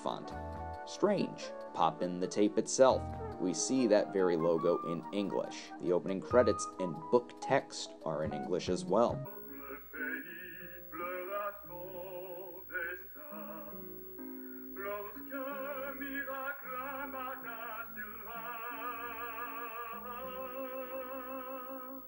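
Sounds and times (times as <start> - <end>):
man singing a ballad: 9.4 - 13.9, 14.8 - 22.0.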